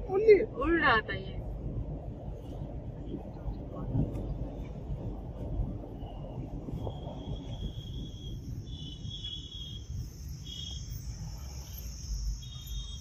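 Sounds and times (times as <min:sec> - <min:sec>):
car road and wind rumble: 0:00.0 - 0:13.0
insect trills: 0:06.7 - 0:13.0.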